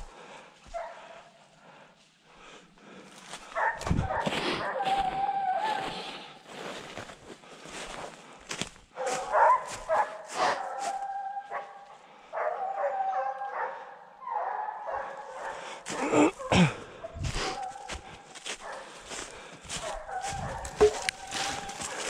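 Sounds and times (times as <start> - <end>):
hounds baying: 3.4 - 6.4, 9.0 - 22.0.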